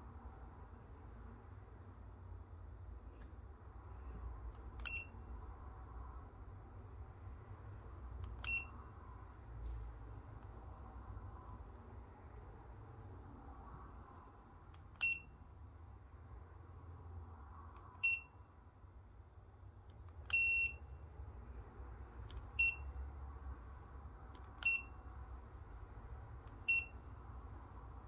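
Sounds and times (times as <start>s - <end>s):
short high beeps: 8.4s - 8.8s, 15.0s - 15.4s, 18.0s - 18.4s.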